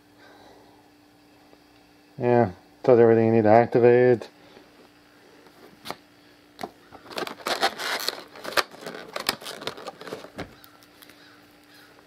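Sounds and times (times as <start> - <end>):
paper and cardboard rustling: 7.0 - 11.1.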